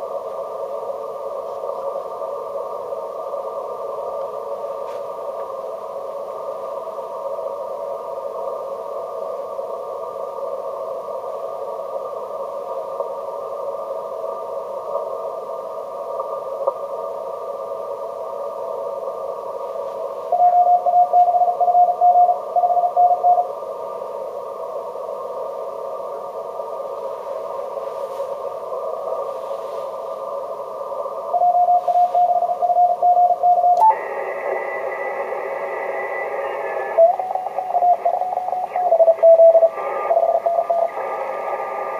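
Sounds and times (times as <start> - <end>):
radio band noise hiss: 0.0 - 41.9
morse code tone: 20.4 - 23.4, 31.4 - 41.2.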